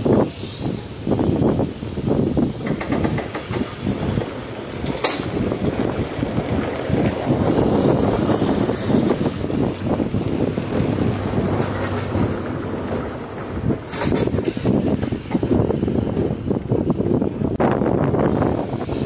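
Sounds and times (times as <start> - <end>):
tram wheels rumbling on rails: 0.0 - 19.0
wind buffeting microphone: 0.0 - 19.0.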